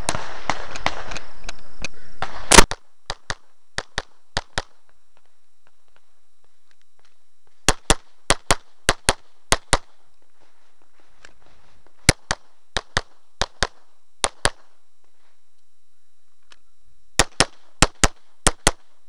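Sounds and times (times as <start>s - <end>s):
pistol shots: 0.0s - 1.3s, 2.2s - 4.8s, 7.7s - 10.0s, 12.1s - 14.8s, 17.2s - 19.0s.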